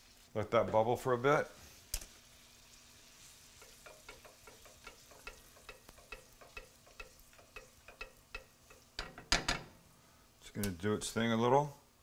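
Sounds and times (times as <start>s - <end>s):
sauce simmering in a pan: 0.0s - 0.4s, 1.6s - 9.3s.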